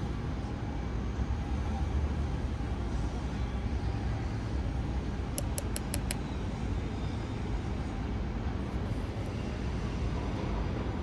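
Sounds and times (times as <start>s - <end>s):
city traffic rumble: 0.0s - 11.0s
high-pitched clicks: 5.4s - 6.2s.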